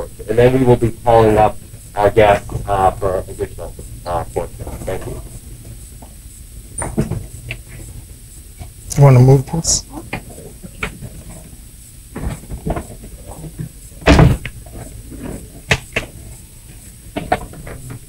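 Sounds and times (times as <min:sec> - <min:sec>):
loud thump: 0:14.1 - 0:14.7.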